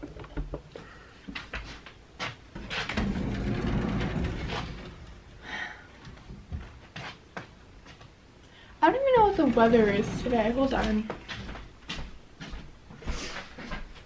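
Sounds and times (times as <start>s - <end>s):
knocks and clicks of handling: 0.0s - 1.6s
sliding door rolling on track: 2.6s - 5.5s, 8.9s - 11.1s.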